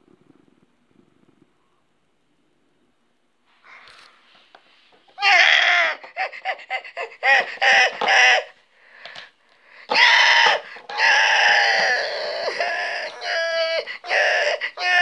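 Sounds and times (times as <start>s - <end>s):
person screeching calls: 5.2s - 6.2s, 9.9s - 15.0s
person squealing and shrieking: 5.2s - 8.6s, 9.9s - 15.0s.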